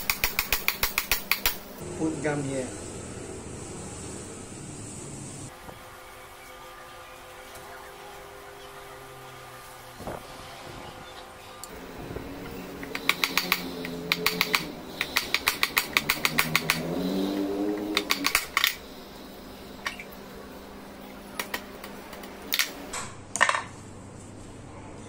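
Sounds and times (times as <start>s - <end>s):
small hammer tapping wood: 12.9s - 16.9s.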